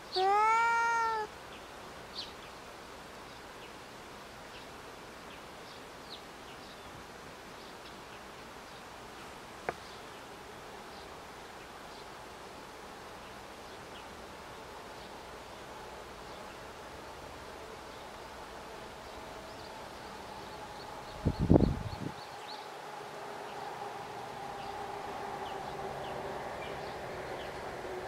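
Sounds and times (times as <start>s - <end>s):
cat meowing: 0.1s - 1.3s.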